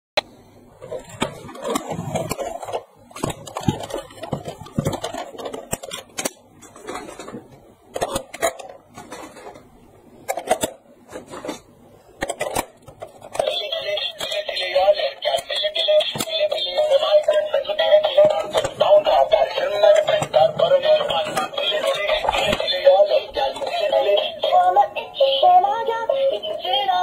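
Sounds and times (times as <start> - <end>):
plastic toy clicks and rattles: 1.0 - 7.3, 7.9 - 9.6, 10.3 - 10.8, 12.2 - 24.4
toy music: 13.4 - 27.0.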